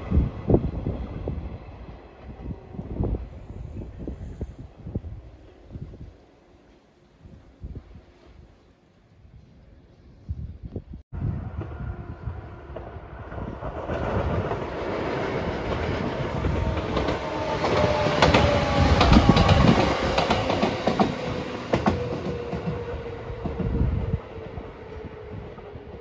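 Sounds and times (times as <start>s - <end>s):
train wheels rumbling on rails: 11.2s - 26.0s
clacks over rail joints: 15.6s - 23.8s.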